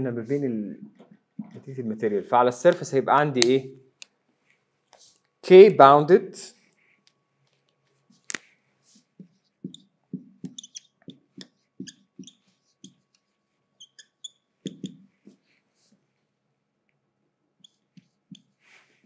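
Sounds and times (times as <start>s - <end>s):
marker squeaking on whiteboard: 8.1s - 15.6s, 17.6s - 19.0s.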